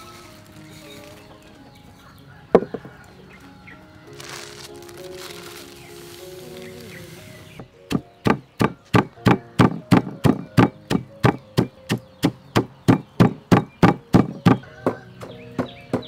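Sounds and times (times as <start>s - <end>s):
pestle pounding in stone mortar: 7.9s - 16.0s.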